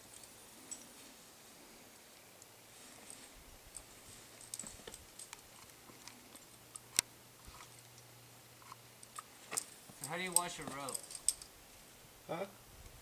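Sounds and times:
climbing gear clicking and clinking: 0.0 - 1.0, 2.8 - 11.5.

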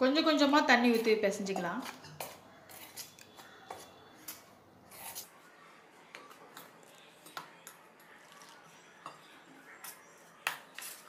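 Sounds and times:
spoon scraping in metal bowl: 0.8 - 5.4, 8.3 - 11.0.

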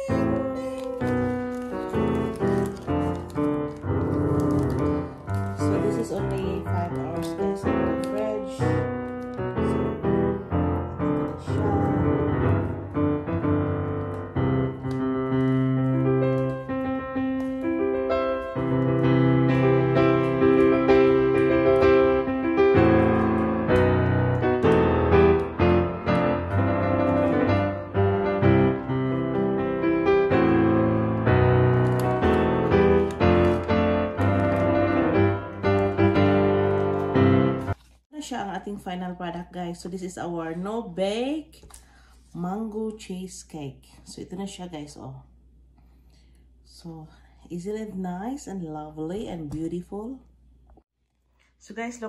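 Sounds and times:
piano music: 0.0 - 37.8.

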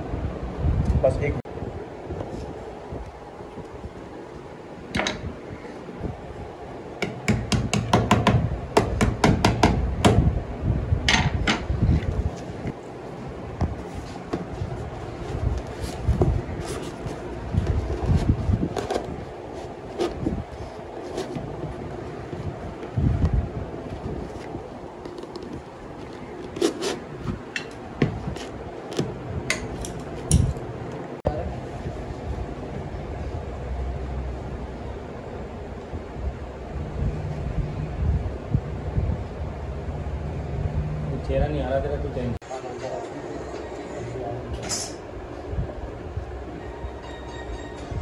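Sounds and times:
steady background noise: 0.0 - 48.0
low rumbling handling noise: 7.4 - 31.2
light knocks and scrapes: 25.1 - 27.4.

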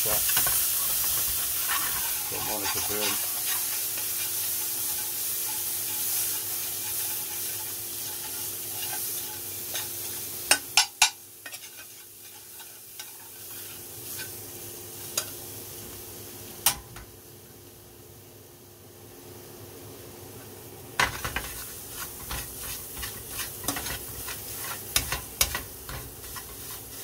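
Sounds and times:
paste sizzling in frying pan: 0.0 - 18.2, 20.8 - 27.0
metal spoon scraping pan: 0.3 - 10.0, 11.4 - 14.4, 21.0 - 27.0.

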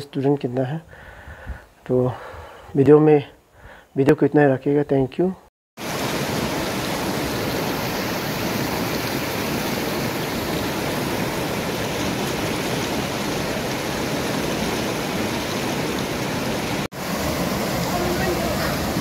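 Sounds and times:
stream water rushing: 5.8 - 19.0.

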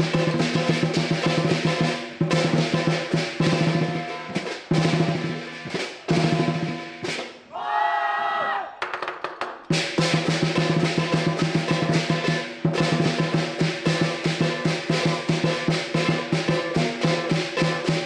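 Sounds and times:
drum beaten in fast rolls: 0.0 - 7.3, 9.7 - 18.0
long held shout: 7.5 - 8.8
ringing cymbals: 10.0 - 18.0.

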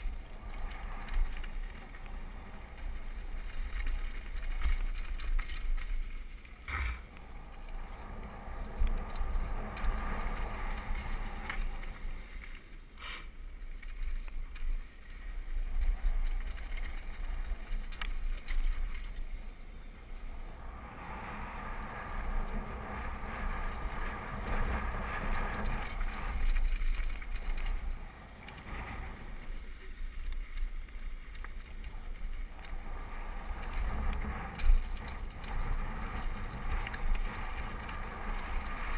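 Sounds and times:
wind on microphone: 14.8 - 38.9.

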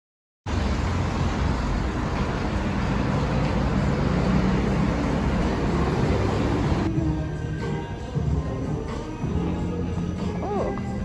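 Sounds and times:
traffic rumble: 0.5 - 7.5.

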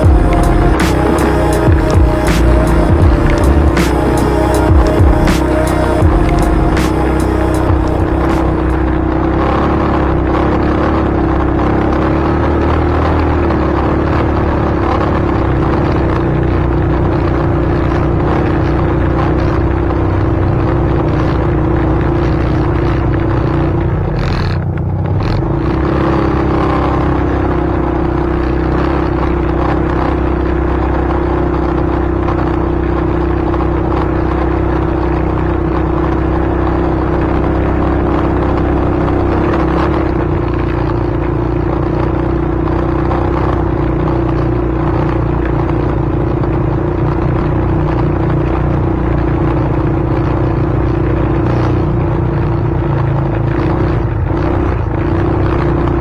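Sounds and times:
vehicle running rumble: 0.0 - 56.0.

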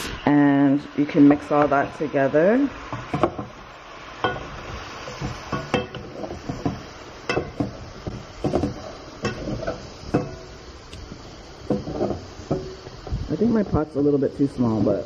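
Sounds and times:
spoon scraping and clinking a pot: 5.2 - 10.5.

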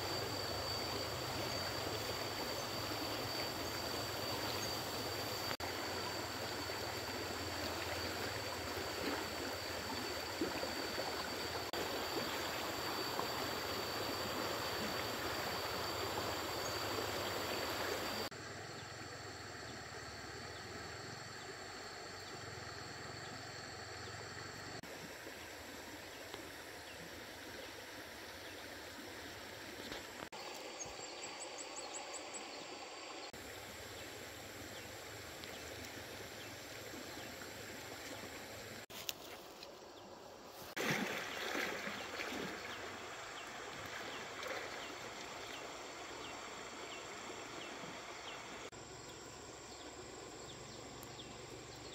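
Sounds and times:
stream water rushing: 0.0 - 18.3, 40.7 - 48.7.

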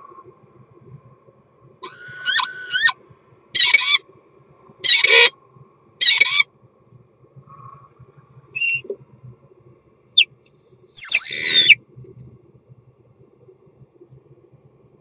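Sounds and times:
starling singing: 3.6 - 4.0, 4.8 - 5.3, 6.0 - 6.4, 8.6 - 8.9, 10.2 - 11.8.

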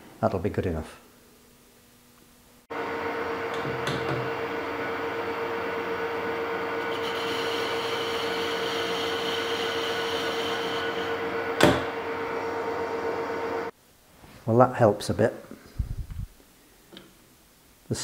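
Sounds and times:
metal lathe humming: 2.7 - 13.7.

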